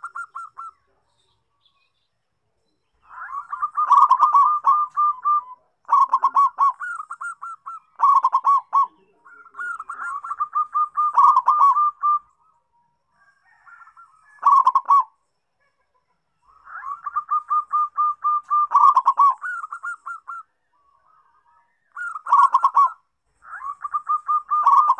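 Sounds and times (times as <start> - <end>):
dove cooing: 0.0 - 0.8, 3.0 - 12.5, 13.2 - 15.2, 16.5 - 20.5, 21.9 - 24.9.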